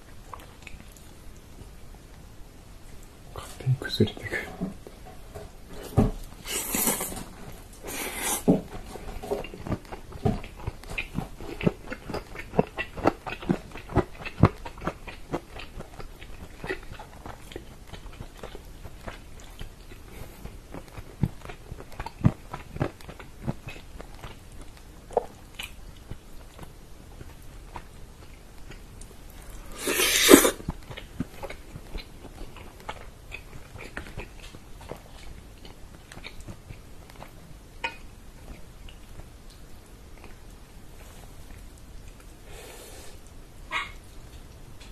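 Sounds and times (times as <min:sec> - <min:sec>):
close chewing and biting: 0:05.8 - 0:40.6
hissing slurps: 0:29.7 - 0:30.6
wet mouth clicks: 0:29.7 - 0:30.6.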